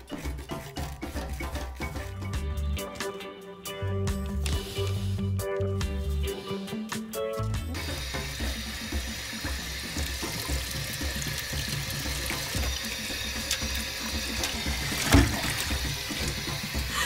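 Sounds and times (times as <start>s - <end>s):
tap water running into metal bowl: 7.8s - 16.9s
sponge scrubbing bowl: 8.6s - 17.0s.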